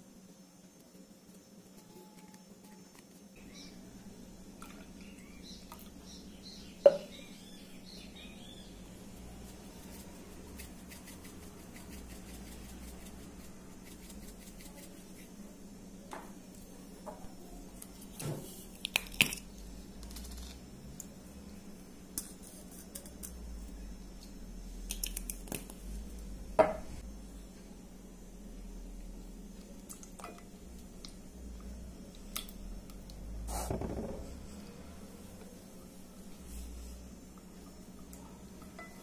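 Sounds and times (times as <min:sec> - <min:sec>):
steady low hum: 0:00.0 - 0:39.0
faint bird chirps: 0:01.8 - 0:04.0, 0:04.7 - 0:08.9.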